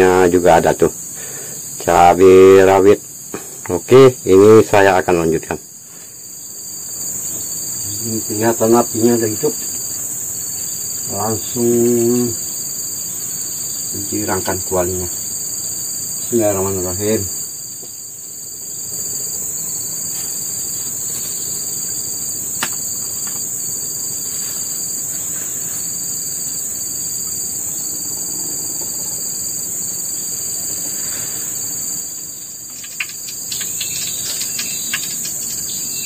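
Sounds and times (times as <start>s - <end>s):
insects chirring: 0.0s - 36.0s
rushing hiss: 30.5s - 36.0s
sharp crackles and clicks: 32.4s - 35.9s.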